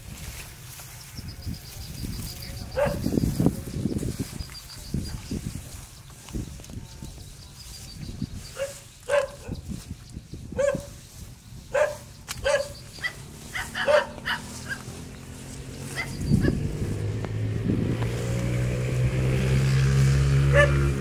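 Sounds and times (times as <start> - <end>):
dog barking: 2.8 - 3.1, 8.6 - 9.6, 10.6 - 10.9, 11.7 - 14.8, 20.5 - 20.8.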